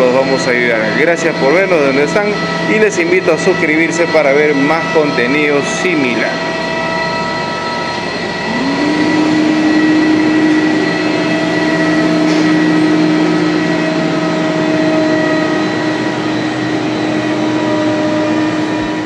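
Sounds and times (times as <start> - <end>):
air compressor whine and hum: 0.0 - 19.0
motor spinning up: 8.3 - 17.7.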